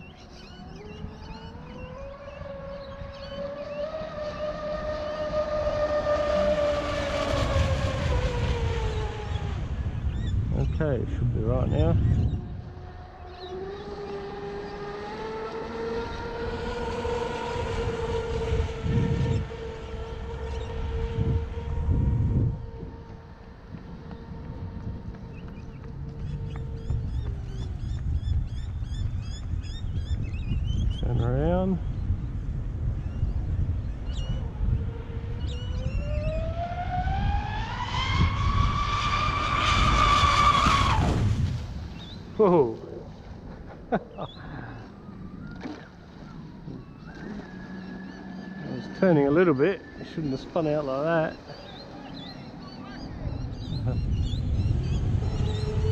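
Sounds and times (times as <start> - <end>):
bird chirps: 0.0 - 5.2, 33.0 - 34.5, 41.9 - 42.4, 44.1 - 55.9
electric boat motor whining: 0.0 - 10.4, 12.0 - 28.6, 33.0 - 55.9
wind rumble: 0.0 - 55.9
electric motor high whine: 12.0 - 27.7.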